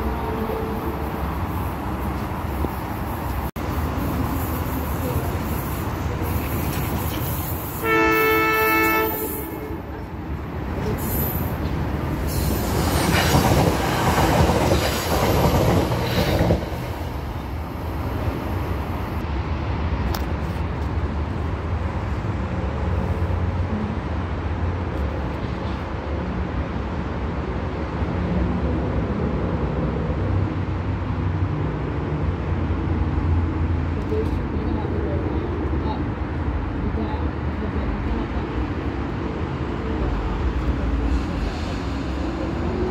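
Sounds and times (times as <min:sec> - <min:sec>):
train wheel and rail noise: 0:00.0 - 0:42.9
train horn blast: 0:07.8 - 0:09.8.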